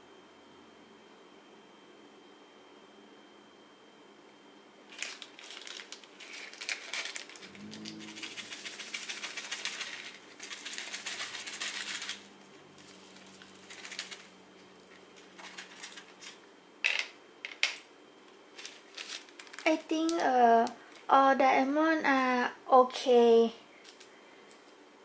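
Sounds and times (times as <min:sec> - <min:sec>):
tiny resin beads rattling: 0:04.9 - 0:12.2, 0:12.9 - 0:14.3.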